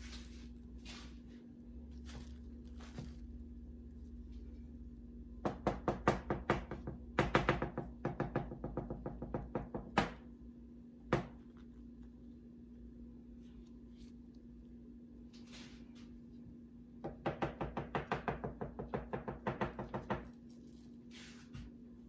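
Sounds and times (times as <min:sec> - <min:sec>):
steady low hum: 0:00.0 - 0:22.0
rapid knocks on hard surface: 0:05.4 - 0:10.2, 0:17.0 - 0:20.3.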